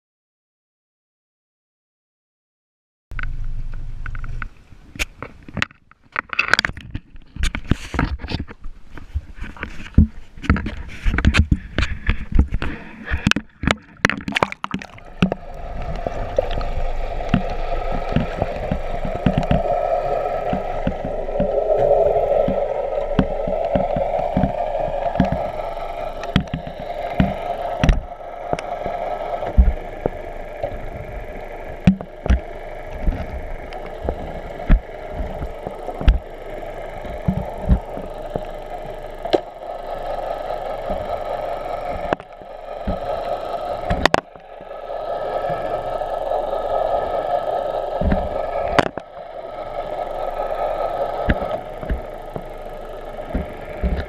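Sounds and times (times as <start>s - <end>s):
faint steady tones: 6.6s - 54.0s
muffled rush of water: 13.1s - 54.0s.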